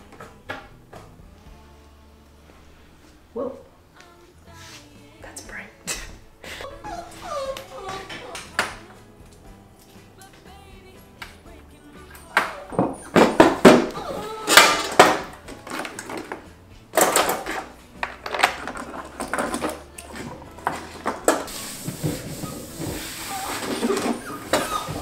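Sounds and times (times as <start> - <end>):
paint tubes clattering into plastic bin: 12.4 - 25.0
cloth rubbing on wooden desk: 21.5 - 24.6.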